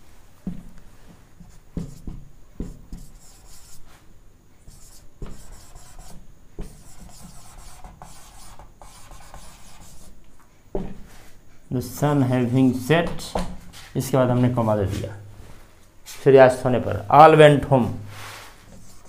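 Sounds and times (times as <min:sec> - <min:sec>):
marker squeaking on whiteboard: 0:01.4 - 0:03.8, 0:04.7 - 0:10.1.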